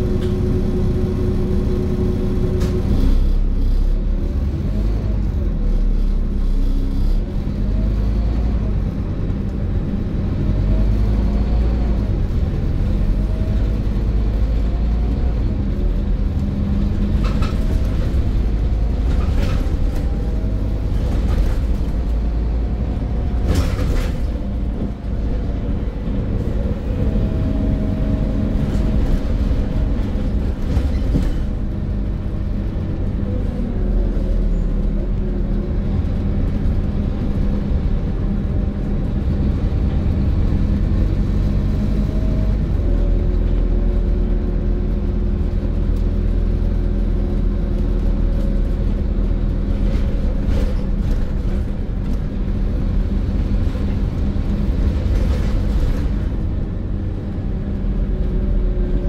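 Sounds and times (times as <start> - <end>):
bus diesel engine rumbling: 0.0 - 59.0.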